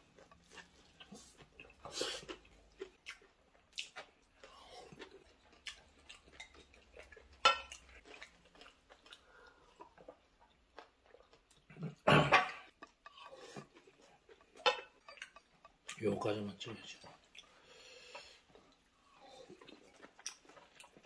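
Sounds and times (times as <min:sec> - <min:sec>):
cutlery clinking on plates: 0:07.4 - 0:07.8.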